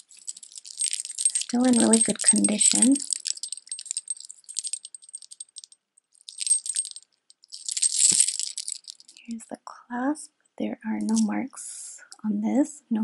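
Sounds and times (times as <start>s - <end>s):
metal necklace clinking: 0.0s - 9.4s.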